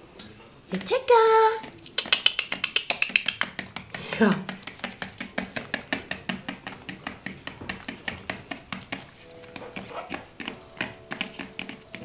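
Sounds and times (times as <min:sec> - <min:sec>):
puppy claws pattering on newspaper: 0:01.6 - 0:12.0.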